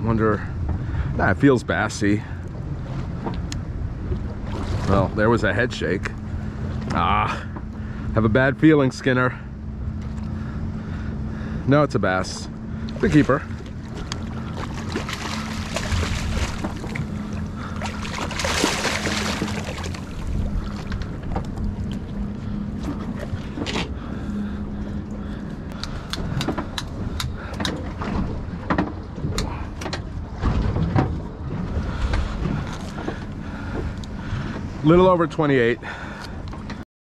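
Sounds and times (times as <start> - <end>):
boat engine idling: 0.0 - 36.8
fish splashing: 13.0 - 21.0.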